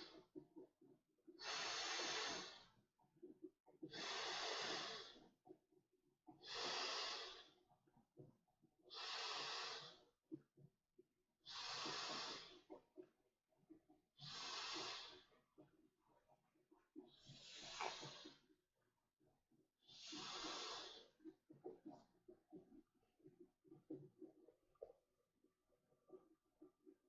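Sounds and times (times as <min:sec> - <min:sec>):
hissing breaths into valve: 0:01.4 - 0:02.8, 0:03.9 - 0:05.3, 0:06.4 - 0:07.6, 0:08.9 - 0:10.0, 0:11.4 - 0:12.7, 0:14.2 - 0:15.3, 0:17.1 - 0:18.4, 0:19.8 - 0:21.2.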